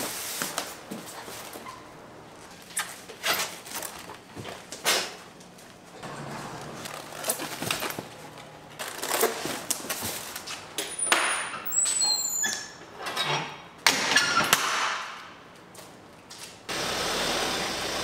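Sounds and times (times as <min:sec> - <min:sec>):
brief high squeaks: 0:11.5 - 0:12.8.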